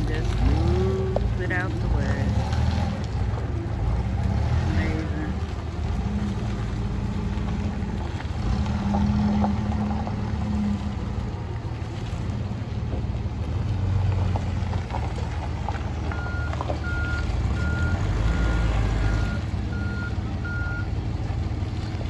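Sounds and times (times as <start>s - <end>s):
forklift engine running: 0.0s - 22.0s
reversing alarm beeping: 16.1s - 20.9s.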